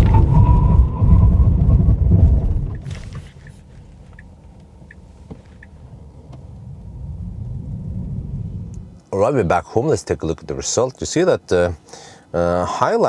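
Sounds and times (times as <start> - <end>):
road and tyre noise: 0.0 - 9.2
faint ticks: 3.4 - 5.8.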